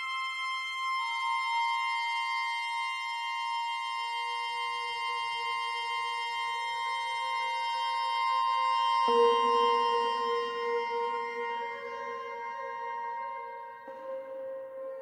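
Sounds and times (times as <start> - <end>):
saxophone: 0.0 - 15.0.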